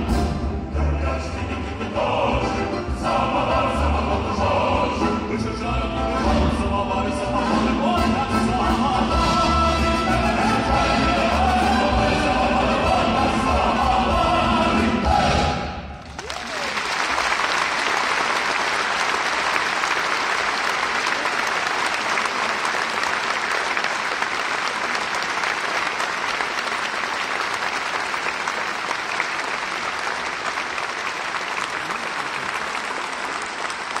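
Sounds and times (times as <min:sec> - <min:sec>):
audience applauding: 0:16.0 - 0:34.0.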